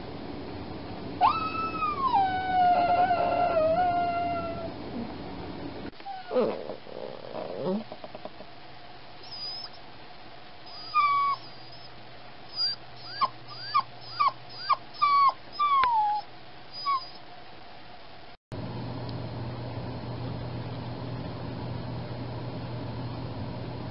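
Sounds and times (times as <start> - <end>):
puppy whining: 1.2 - 5.1, 6.0 - 8.5, 9.2 - 9.8, 10.7 - 11.9, 12.5 - 17.2.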